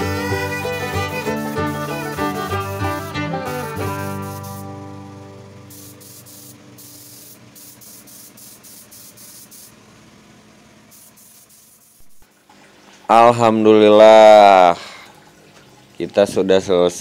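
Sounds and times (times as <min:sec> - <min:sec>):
paint spray gun hissing: 0:00.0 - 0:04.8, 0:05.6 - 0:09.9, 0:10.8 - 0:12.2.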